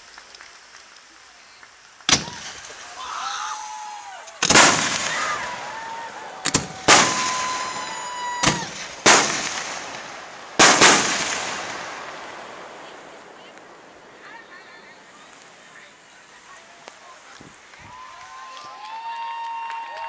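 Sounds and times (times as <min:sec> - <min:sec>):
firework shells bursting: 0:00.0 - 0:14.2
rolling echo: 0:04.3 - 0:15.5.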